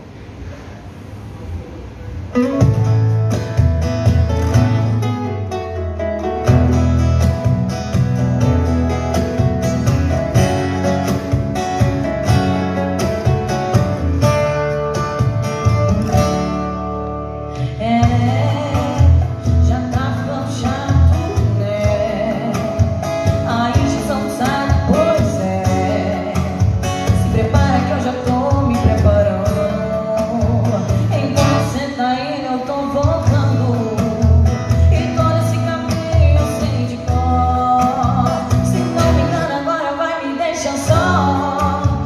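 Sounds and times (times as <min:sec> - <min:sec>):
acoustic guitar strumming: 0:02.1 - 0:42.0
woman singing into microphone: 0:17.5 - 0:42.0.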